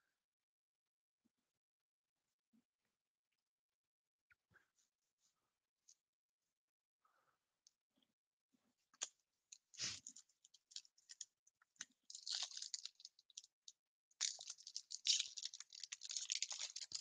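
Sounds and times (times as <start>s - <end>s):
foil pack crinkling: 12.1s - 13.5s, 14.2s - 17.0s.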